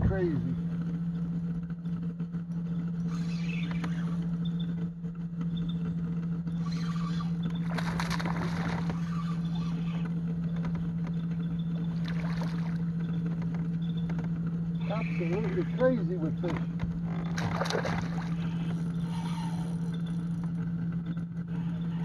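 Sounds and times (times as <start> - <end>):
boat motor humming: 0.0 - 22.0
fish splashing at surface: 17.4 - 18.4.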